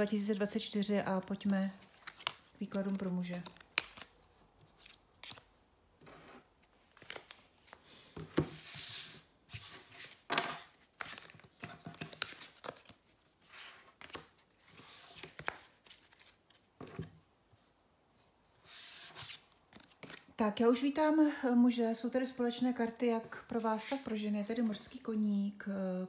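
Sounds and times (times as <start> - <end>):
cards sliding on wooden table: 18.6 - 19.4.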